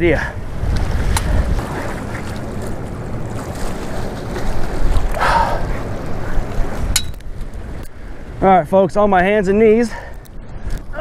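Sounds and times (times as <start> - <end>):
wind buffeting microphone: 0.0 - 11.0
waves washing against pier: 0.4 - 8.4.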